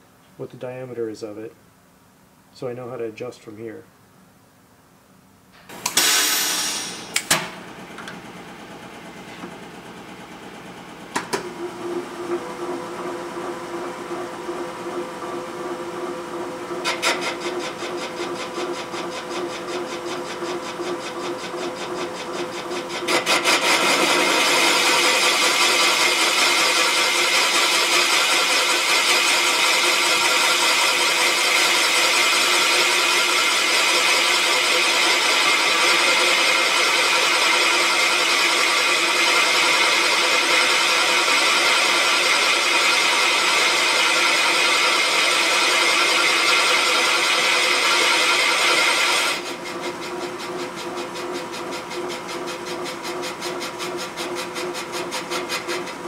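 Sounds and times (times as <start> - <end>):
machine motor humming: 5.6 - 18.9
cutter hissing on metal: 5.8 - 7.2.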